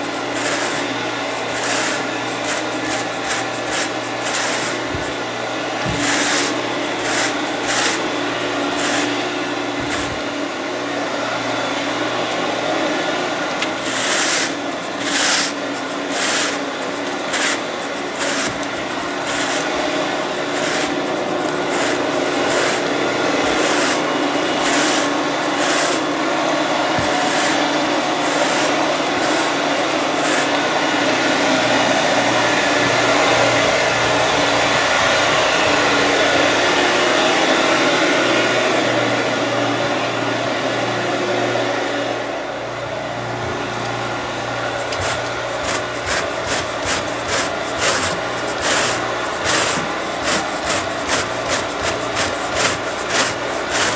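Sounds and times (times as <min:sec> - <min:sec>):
carpet rake scratching: 0:00.0 - 0:10.4, 0:13.6 - 0:36.6, 0:44.4 - 0:53.9
vacuum motor humming: 0:00.0 - 0:53.9.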